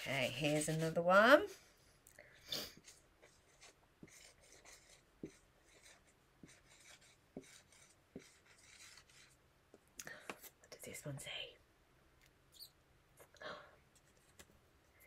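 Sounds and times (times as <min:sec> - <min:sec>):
marker pen scratching on whiteboard: 0:00.0 - 0:01.2, 0:02.8 - 0:09.4.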